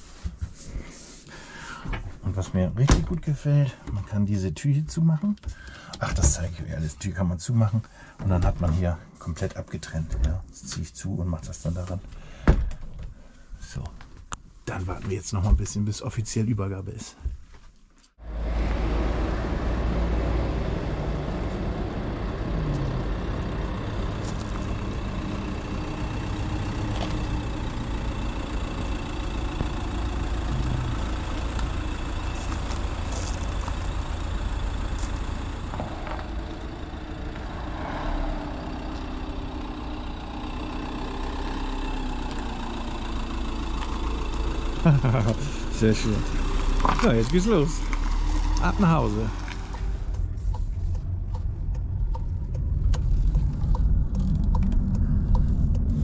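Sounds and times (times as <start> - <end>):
motorhome engine running at low revs: 18.2 - 56.0.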